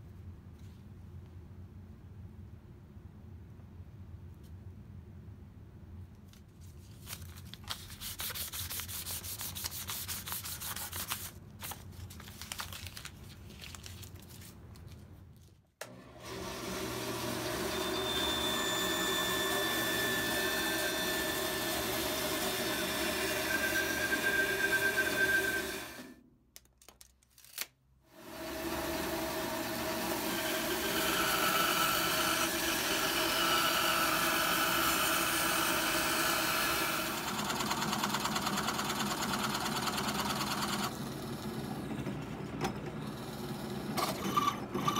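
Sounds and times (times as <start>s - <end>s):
hands rubbing paper on wood: 6.6s - 12.3s
bandsaw cutting wood: 16.1s - 26.1s, 28.2s - 37.2s.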